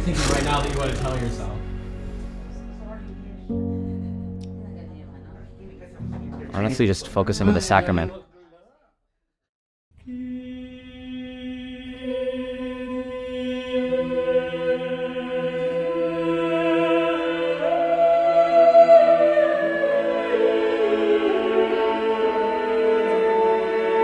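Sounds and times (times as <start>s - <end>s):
sacred choral singing: 10.0s - 24.0s.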